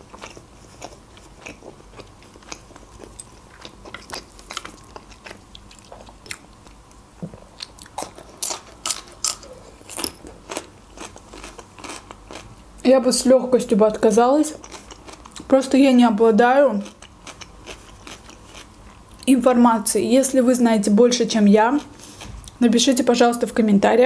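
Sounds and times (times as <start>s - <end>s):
chewing with wet mouth clicks: 0.1s - 7.0s, 7.6s - 12.5s.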